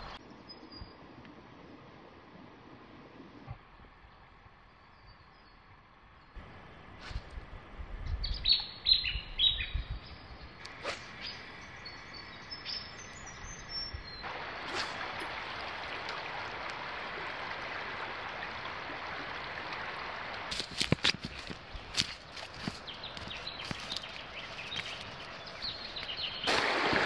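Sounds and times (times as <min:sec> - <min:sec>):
river rushing over shallows: 0:14.2 - 0:27.0.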